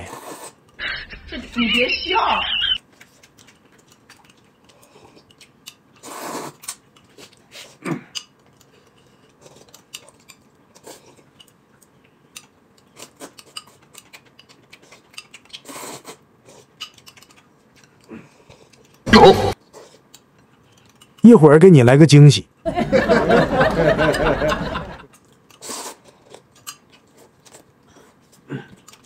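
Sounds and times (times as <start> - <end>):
slurping noodles: 0.1 - 0.7, 6.0 - 7.8, 14.7 - 16.8, 25.5 - 28.2.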